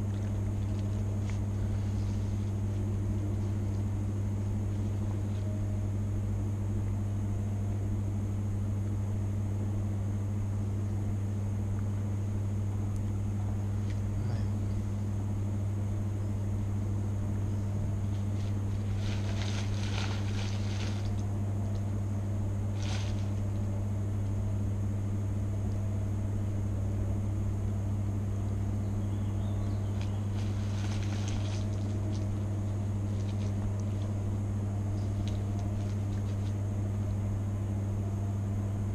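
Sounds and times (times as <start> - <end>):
steady low hum: 0.0 - 38.9
rustling and handling noises: 18.0 - 22.0, 22.6 - 23.7, 29.9 - 34.2, 34.9 - 37.2.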